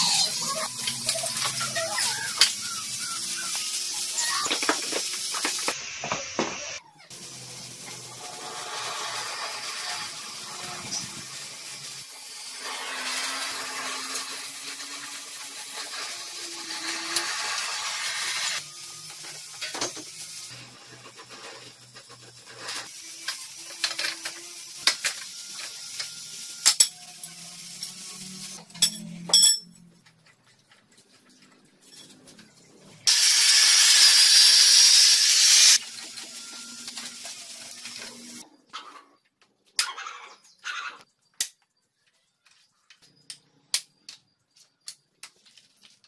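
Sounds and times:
sharp metal clanks: 28.7 - 29.8
metallic clinks and knocks of tools: 28.7 - 32.5
gas torch hissing: 33.1 - 35.8.

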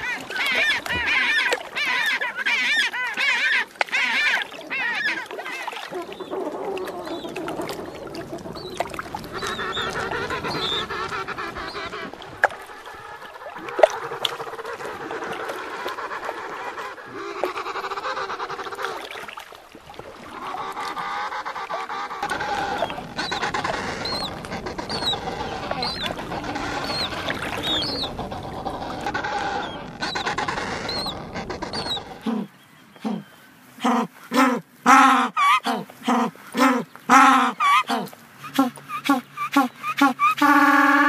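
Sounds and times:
penguins trumpet calling: 38.6 - 41.0.

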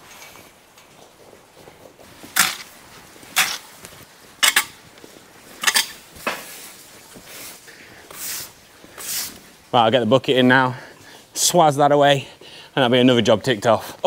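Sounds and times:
broom sweeping wet concrete: 5.6 - 9.7.

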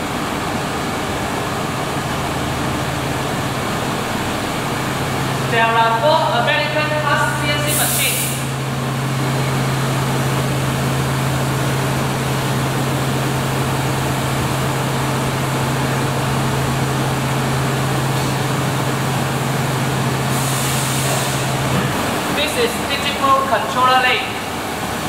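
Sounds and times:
machining centers running: 0.0 - 20.6
low machine hum: 0.0 - 25.0
even hiss: 7.3 - 8.6
burst of higher hiss: 7.6 - 8.6, 20.3 - 21.6.

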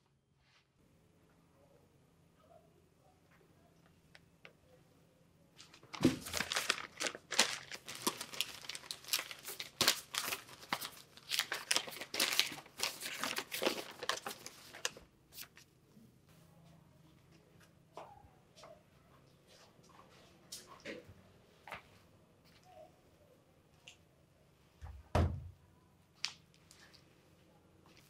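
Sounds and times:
irregular crackles: 5.6 - 15.7
paper rustling and crinkling: 5.6 - 15.7.

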